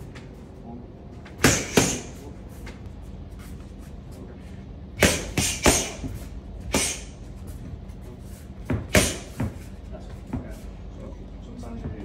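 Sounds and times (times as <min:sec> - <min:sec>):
boxer punching: 0:01.4 - 0:02.1, 0:05.0 - 0:06.1, 0:08.8 - 0:09.4.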